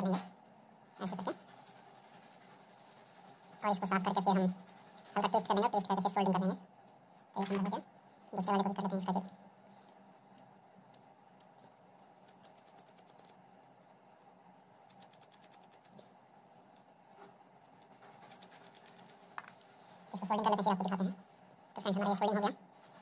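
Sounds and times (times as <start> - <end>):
small handling noises: 9.2 - 23.0.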